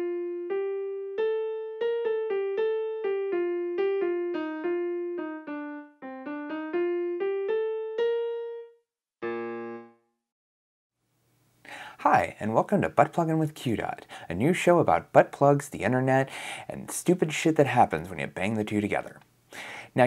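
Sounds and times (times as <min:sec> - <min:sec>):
plucked keyboard melody: 0:00.0 - 0:10.1.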